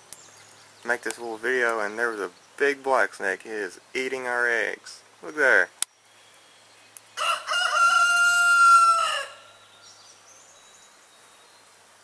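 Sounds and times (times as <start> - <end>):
rooster crowing: 7.2 - 9.7.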